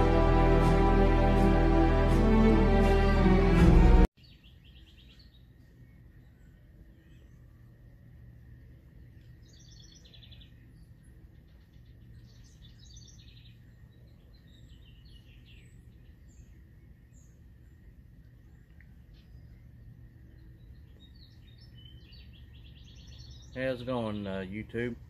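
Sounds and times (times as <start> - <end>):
low background rumble: 5.4 - 23.6.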